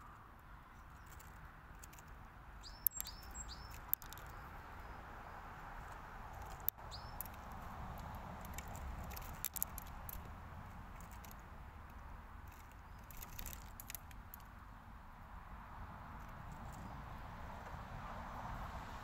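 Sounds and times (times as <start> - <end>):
bird pecking at seed: 0.9 - 4.5, 5.8 - 14.5
short high bird chirp: 2.6 - 4.4, 6.8 - 7.3.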